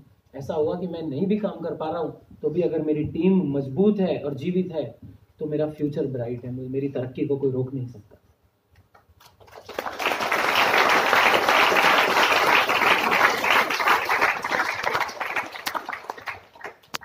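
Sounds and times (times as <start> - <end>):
audience applauding: 9.3 - 17.0.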